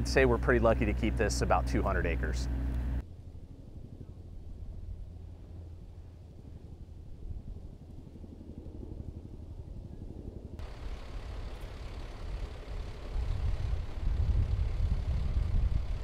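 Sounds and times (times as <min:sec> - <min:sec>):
diesel engine idling: 0:10.6 - 0:16.0.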